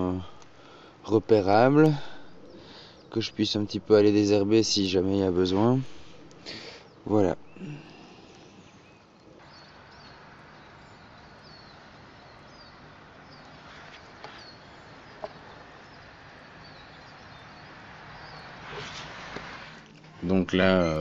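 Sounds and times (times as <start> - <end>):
steady hiss: 0.0 - 21.0
small bird chirping: 6.2 - 21.0.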